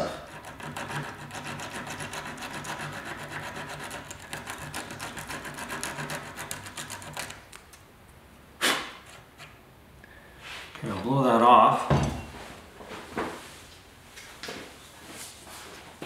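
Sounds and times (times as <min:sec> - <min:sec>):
sandpaper rasping on metal: 0:00.3 - 0:07.4.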